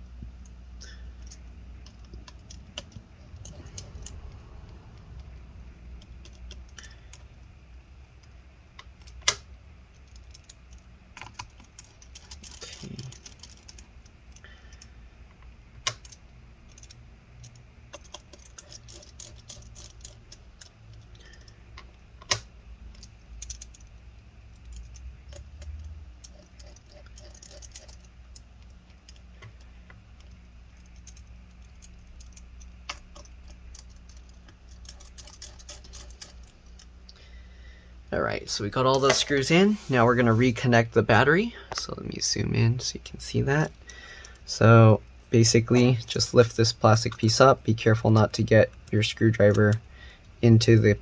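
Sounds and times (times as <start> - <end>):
screwdriver clicking on screws: 30.2 - 36.9.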